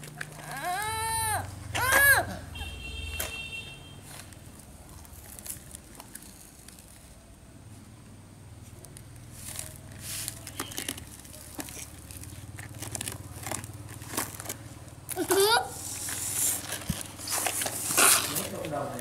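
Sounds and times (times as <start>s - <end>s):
sand spilling: 15.8s - 18.6s
plastic toy trucks scraping in sand: 15.8s - 19.0s.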